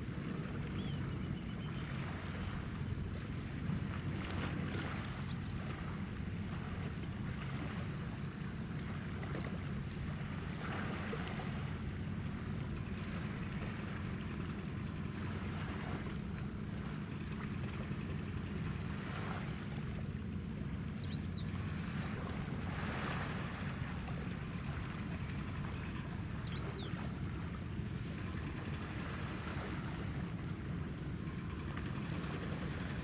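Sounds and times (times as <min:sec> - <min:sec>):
ship engines droning: 0:00.0 - 0:33.0
water noise: 0:00.0 - 0:33.0
wind: 0:00.0 - 0:33.0.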